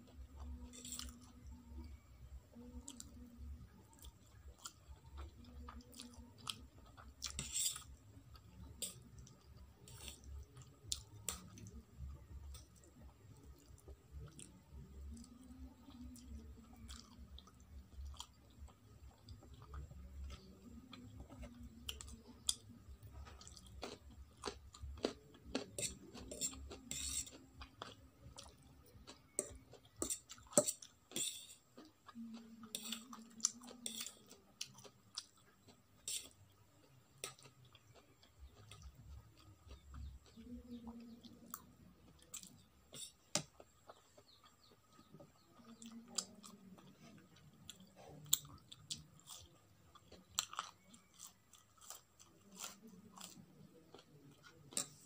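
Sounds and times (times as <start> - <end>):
wet chewing and slurping: 37.2 - 55.0.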